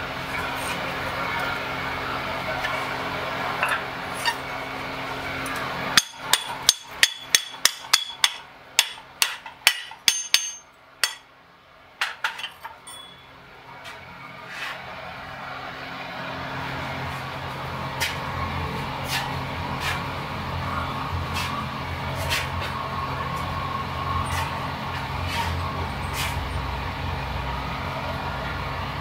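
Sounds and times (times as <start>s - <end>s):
hammer striking steel on anvil: 5.9s - 11.3s, 12.0s - 13.3s.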